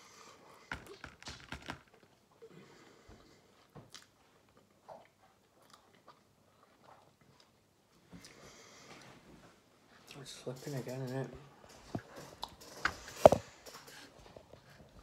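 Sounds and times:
person chewing crisp food: 0:03.6 - 0:08.4.

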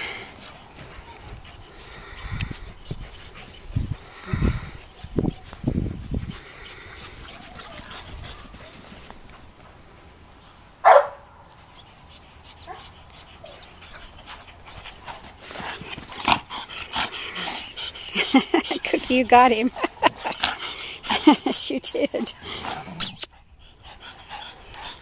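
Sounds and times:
dogs barking and yipping: 0:10.8 - 0:21.5.

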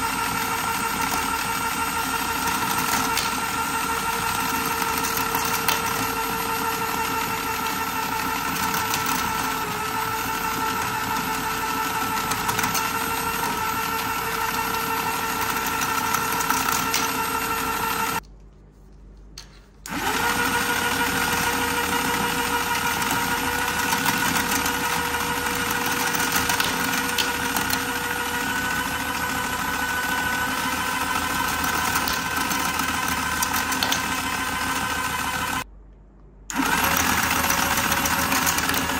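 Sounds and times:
small motor whine: 0:19.9 - 0:35.6.

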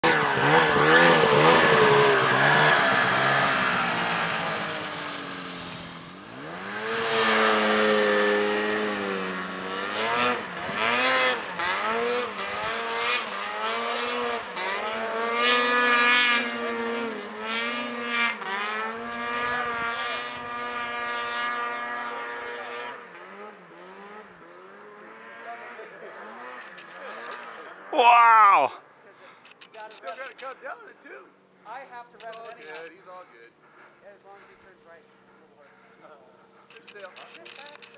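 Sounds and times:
snowmobile engine revving: 0:00.0 - 0:28.7, 0:29.5 - 0:30.6, 0:32.2 - 0:32.9.

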